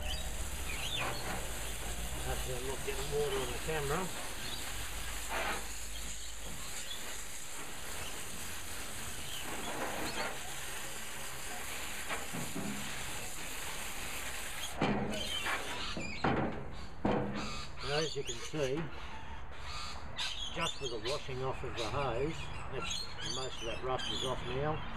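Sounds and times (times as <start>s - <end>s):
hose nozzle spraying water: 0.0s - 16.0s.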